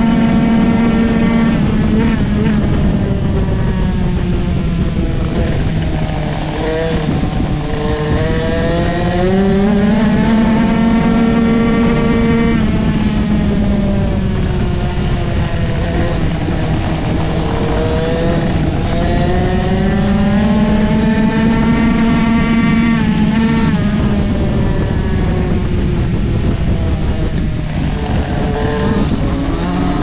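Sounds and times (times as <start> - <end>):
two-stroke motorcycle engine racing: 0.0 - 30.0
wind rushing: 0.0 - 30.0.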